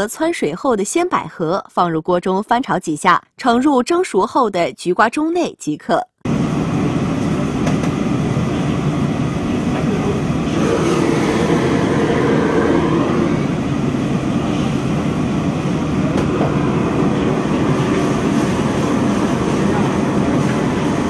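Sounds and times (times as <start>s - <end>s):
kitchen wok ranges and ventilation roar: 6.3s - 21.0s.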